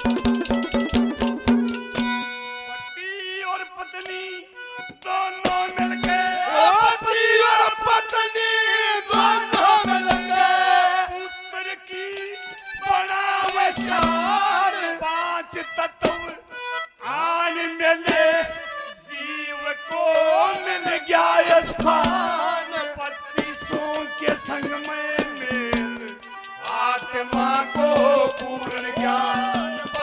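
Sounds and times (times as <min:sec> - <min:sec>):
hand drum strokes: 0:00.0 - 0:02.3
steady instrumental tones: 0:00.0 - 0:03.0, 0:09.1 - 0:11.7
man singing: 0:02.7 - 0:30.0.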